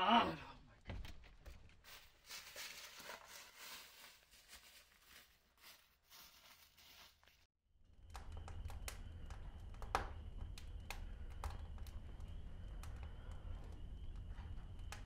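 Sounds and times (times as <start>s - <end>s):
footsteps through dry leaves: 1.8s - 7.5s.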